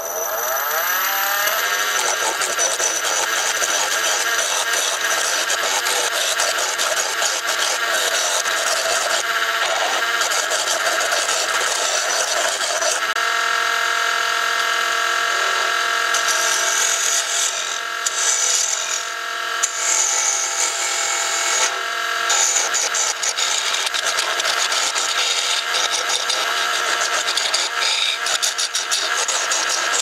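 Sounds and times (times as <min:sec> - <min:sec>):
wood lathe whine: 0:00.0 - 0:30.0
turning tool cutting wood hiss: 0:01.0 - 0:13.1, 0:22.3 - 0:30.0.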